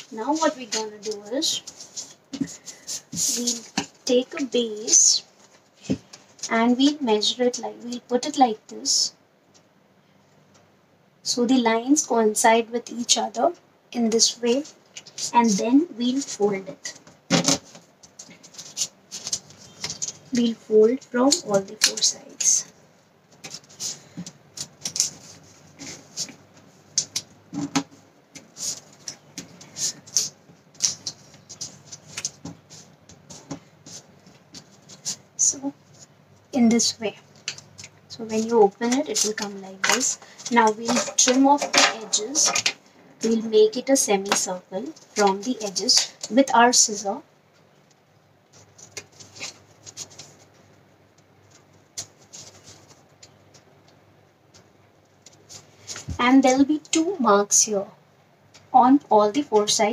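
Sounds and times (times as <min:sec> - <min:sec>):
paper rustling as it is folded: 0:00.0 - 0:08.3, 0:14.2 - 0:22.7, 0:23.3 - 0:27.2, 0:28.3 - 0:47.1, 0:48.5 - 0:50.8, 0:51.4 - 0:56.2.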